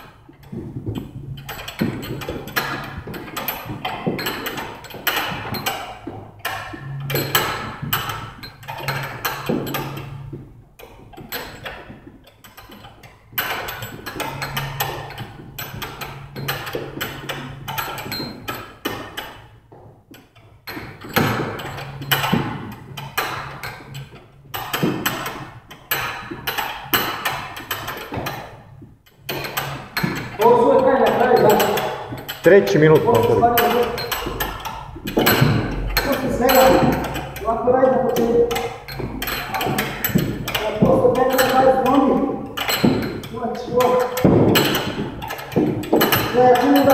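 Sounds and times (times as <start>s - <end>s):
battle ropes slapping floor: 0.0s - 46.9s.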